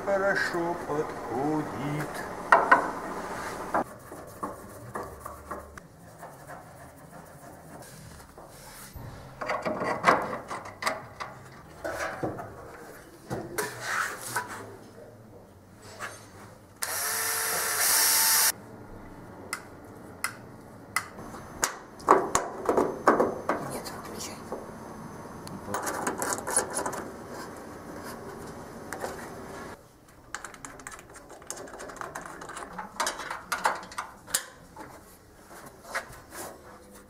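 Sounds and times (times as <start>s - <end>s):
power tool running: 16.8s - 18.5s
parts being handled: 25.7s - 37.0s.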